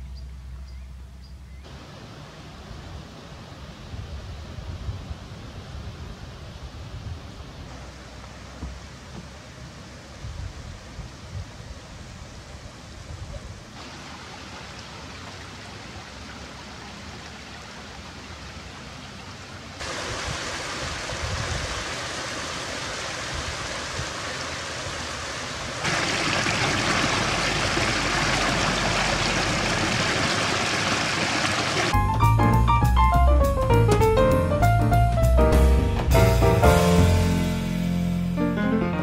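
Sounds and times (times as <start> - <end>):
stream water rushing: 1.7 - 4.0, 13.7 - 32.0
water spilling down cascade: 13.8 - 32.0.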